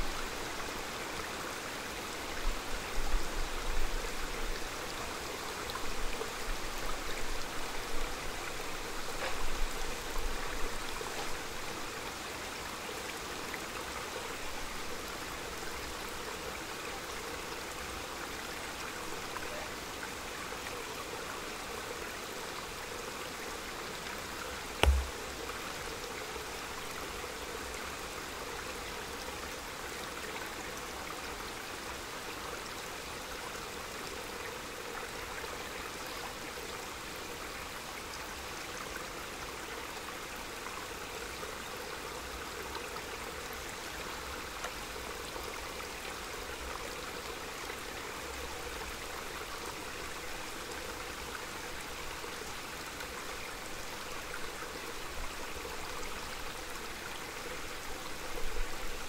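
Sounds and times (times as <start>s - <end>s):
mountain stream flowing: 0.0s - 59.0s.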